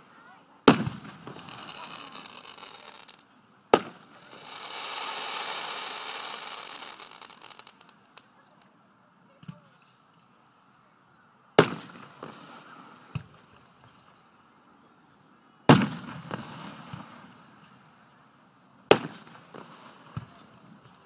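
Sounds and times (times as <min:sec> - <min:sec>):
fireworks booming with echo: 0:00.6 - 0:08.3, 0:11.6 - 0:13.5, 0:15.7 - 0:17.6, 0:18.9 - 0:21.0.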